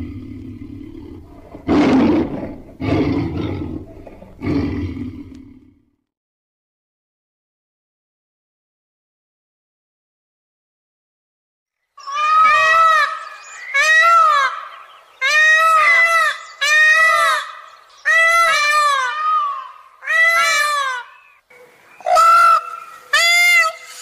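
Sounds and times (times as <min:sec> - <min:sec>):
peacock calling: 0:12.0 - 0:24.0.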